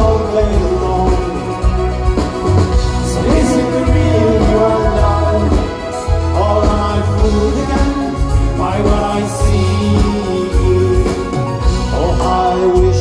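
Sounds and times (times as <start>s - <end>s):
live rock band playing: 0.0s - 13.0s
man singing: 0.0s - 13.0s.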